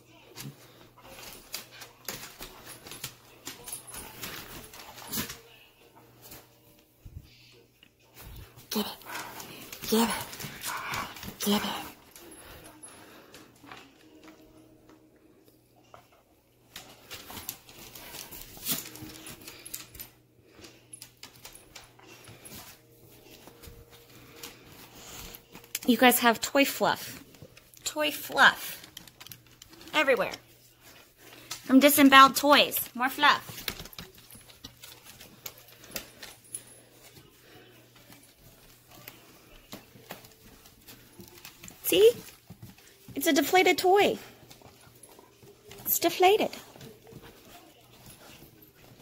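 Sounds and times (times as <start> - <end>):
dogs scuffling over a toy: 16.7 - 25.8, 32.8 - 49.0
dog claws tapping on wood floor: 26.7 - 36.7.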